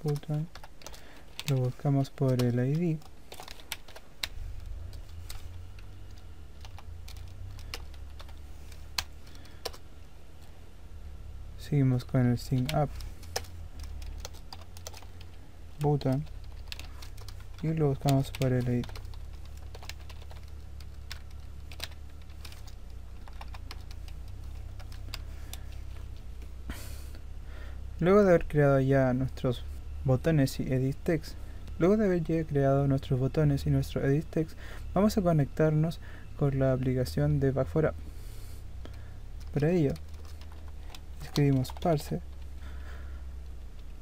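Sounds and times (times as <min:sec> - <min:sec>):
keyboard keys clicking: 0:00.0 - 0:09.8, 0:12.4 - 0:26.3, 0:39.4 - 0:42.5
low steady hum: 0:00.0 - 0:44.0.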